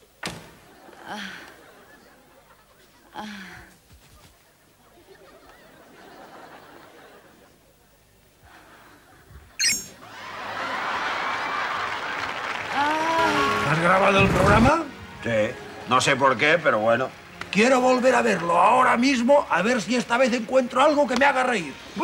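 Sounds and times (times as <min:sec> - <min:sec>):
audience laughter: 0:00.6 - 0:03.1, 0:04.8 - 0:07.7, 0:08.5 - 0:12.7
audience applause: 0:10.0 - 0:14.8, 0:15.8 - 0:21.7.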